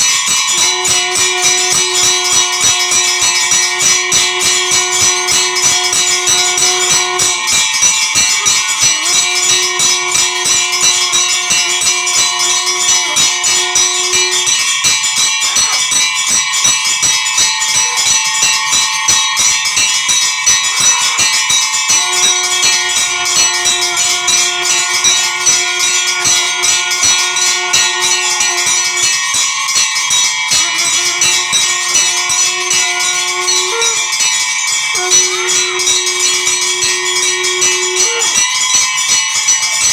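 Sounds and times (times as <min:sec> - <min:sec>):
temple bells ringing rapidly: 0:00.0 - 0:39.9
steady held note: 0:00.3 - 0:16.6, 0:17.2 - 0:38.7.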